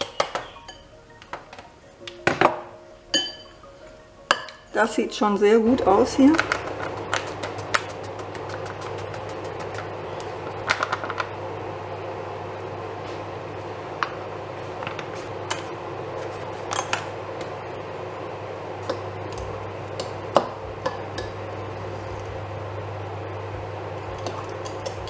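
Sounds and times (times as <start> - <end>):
steady low hum: 5.4 - 25.0
dry mix being stirred: 6.0 - 11.2, 15.0 - 17.0.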